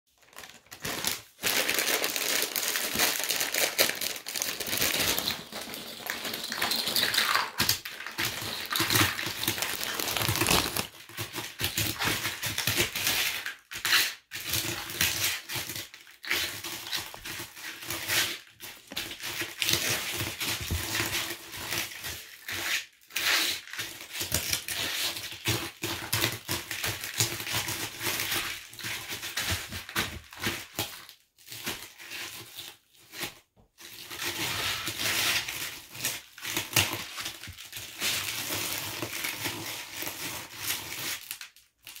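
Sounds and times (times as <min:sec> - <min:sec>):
feet crunching corn snacks: 0:08.5 - 0:11.0.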